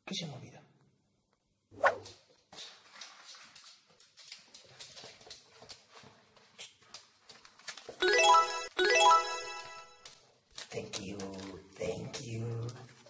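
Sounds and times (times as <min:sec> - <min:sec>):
dog claws clicking on floor: 0:02.9 - 0:08.0, 0:10.0 - 0:13.0.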